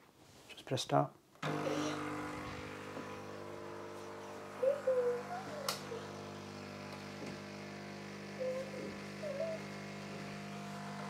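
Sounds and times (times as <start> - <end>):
coffee machine pump humming: 1.4 - 11.0.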